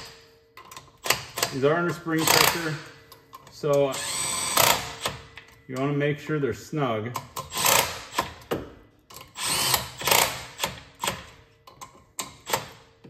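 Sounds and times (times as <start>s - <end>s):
impact wrench hammering: 0.0s - 3.0s, 7.2s - 11.3s.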